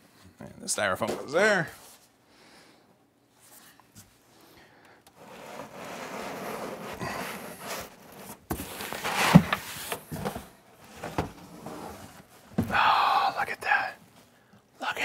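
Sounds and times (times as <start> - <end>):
cardboard rubbing and scraping: 5.2 - 12.3.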